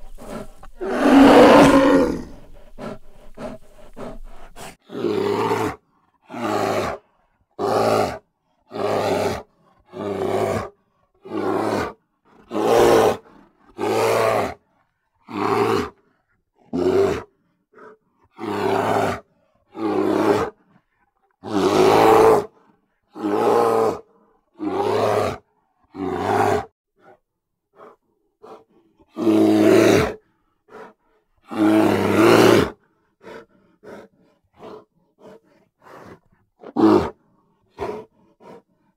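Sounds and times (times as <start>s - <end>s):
bear grunts: 0.0s - 7.0s
bear roaring: 0.0s - 14.6s, 16.7s - 17.4s, 18.3s - 20.6s, 21.4s - 22.6s, 23.2s - 26.7s, 27.8s - 30.9s, 31.5s - 38.6s.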